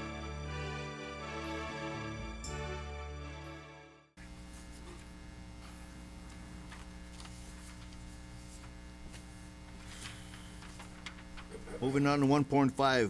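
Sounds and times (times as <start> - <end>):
intro music: 0.0 - 4.2
steady mains hum: 4.2 - 13.0.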